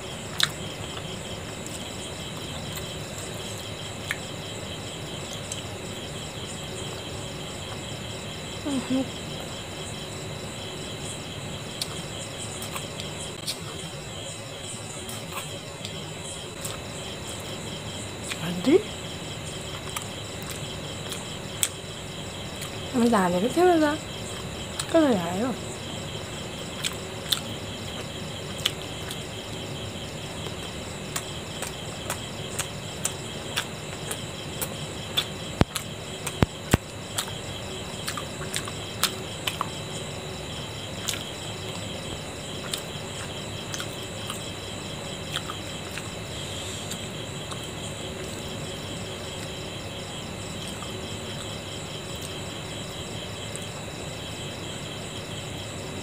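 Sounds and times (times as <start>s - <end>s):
crickets chirping: 0.0s - 56.0s
person chewing: 0.3s - 0.6s, 16.6s - 16.8s, 19.7s - 21.7s, 26.8s - 27.5s, 30.5s - 37.4s, 38.0s - 39.7s, 41.0s - 41.8s, 42.6s - 44.4s, 45.3s - 46.1s.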